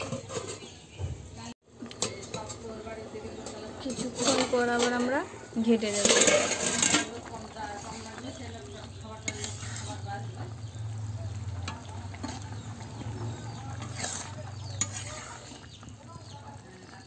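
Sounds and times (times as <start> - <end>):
spatula scraping a pan: 0.0 - 0.9, 3.4 - 17.0
curry bubbling and sizzling: 1.3 - 17.0.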